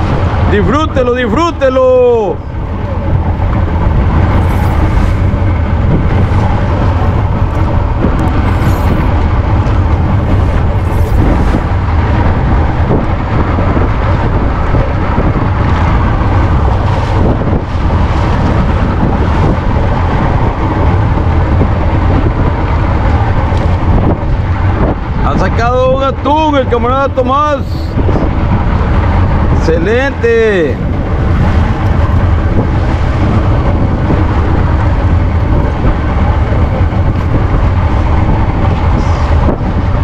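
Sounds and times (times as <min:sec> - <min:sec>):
boat engine low rumble: 0:00.0 - 0:40.0.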